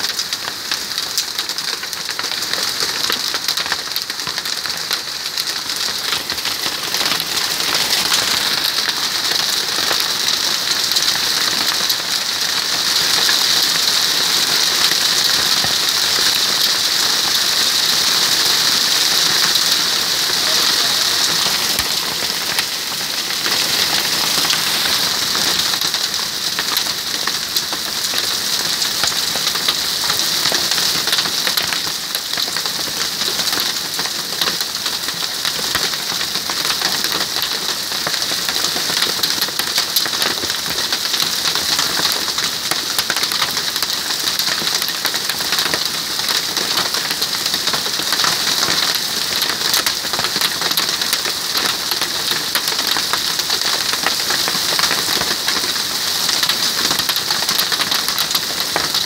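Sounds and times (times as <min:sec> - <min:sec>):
hail clattering on wooden deck: 0:00.1 - 0:59.0
heavy rain hiss: 0:05.1 - 0:27.3.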